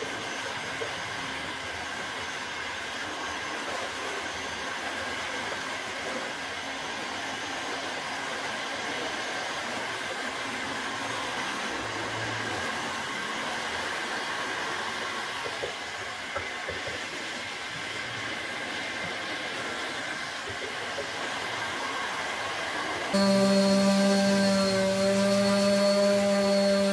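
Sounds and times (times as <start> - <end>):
heat gun blowing: 23.1 - 26.9
metal scraper scraping wood: 23.2 - 26.9.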